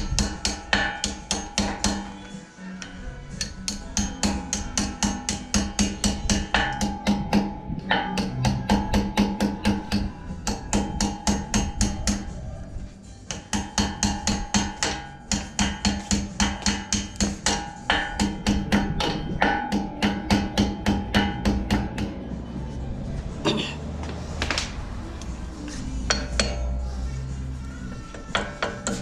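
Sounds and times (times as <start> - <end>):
hammer strikes on metal: 0.0 - 2.2, 2.8 - 12.4, 13.3 - 22.2, 26.0 - 26.8, 28.1 - 29.0.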